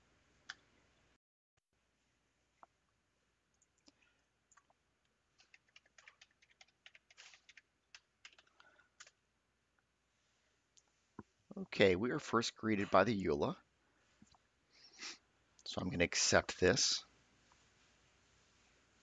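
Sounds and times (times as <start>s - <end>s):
keyboard typing: 5.4s - 9.2s.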